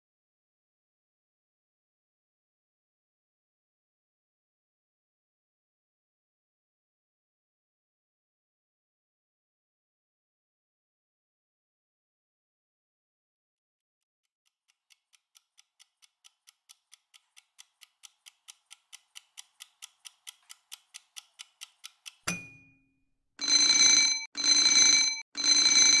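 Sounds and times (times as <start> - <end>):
timer ticking rapidly: 14.6 - 22.7, 23.4 - 26.0
alarm bell ringing: 23.4 - 26.0.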